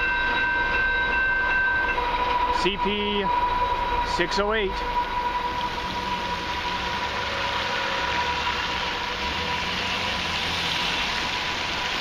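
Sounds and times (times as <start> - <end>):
thin steady high tone: 0.0 - 10.3
car engines: 0.0 - 12.0
tyres hissing on wet road: 4.2 - 12.0.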